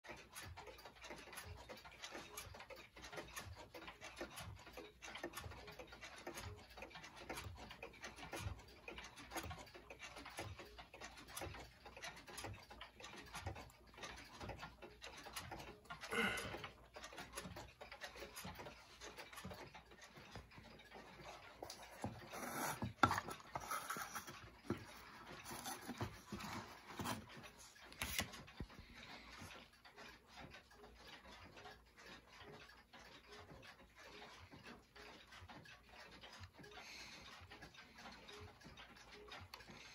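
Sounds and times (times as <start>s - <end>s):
clocks ticking: 0.0s - 39.9s
handling rustles and knocks: 21.8s - 28.4s.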